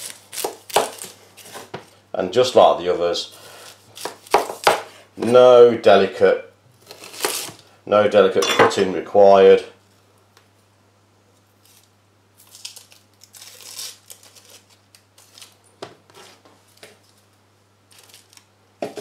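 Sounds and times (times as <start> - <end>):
onion skin crackling and tearing: 0.0 - 1.8, 6.8 - 7.7, 11.6 - 15.7, 17.9 - 18.5.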